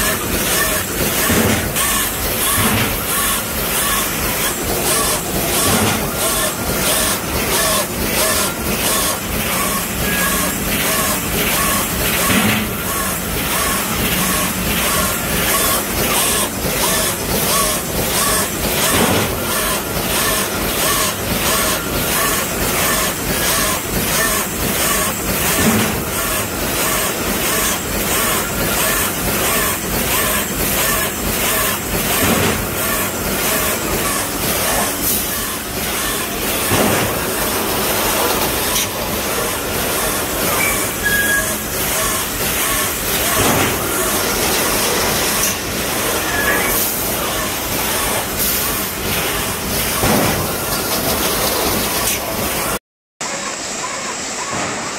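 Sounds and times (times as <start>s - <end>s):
welding machine clattering rhythmically: 0.0s - 52.8s.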